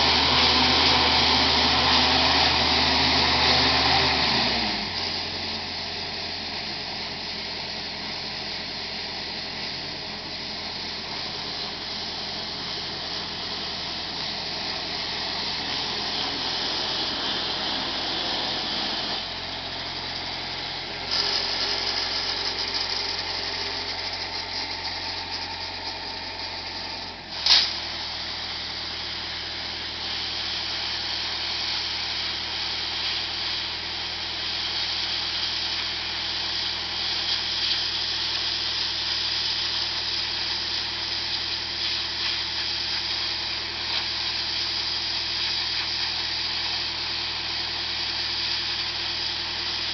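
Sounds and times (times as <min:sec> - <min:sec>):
engine running steadily: 0:00.0 - 0:49.9
pressure lance spraying water: 0:10.7 - 0:49.9.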